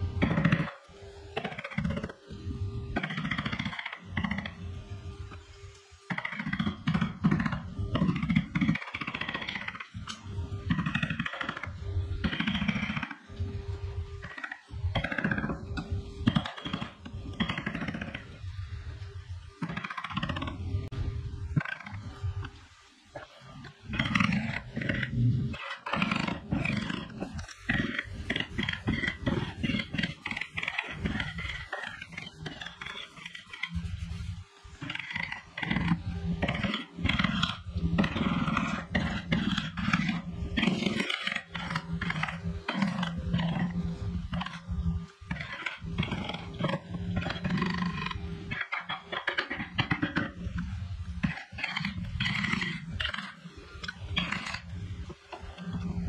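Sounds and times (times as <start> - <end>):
tool scraping wood: 23.2 - 44.7, 45.3 - 56.0.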